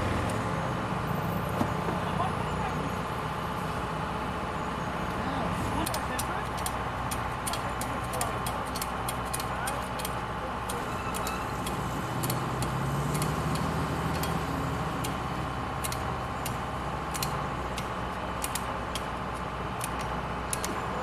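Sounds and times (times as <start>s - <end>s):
truck engine humming: 0.0s - 21.0s
sharp clicks: 5.8s - 15.2s, 15.8s - 20.8s.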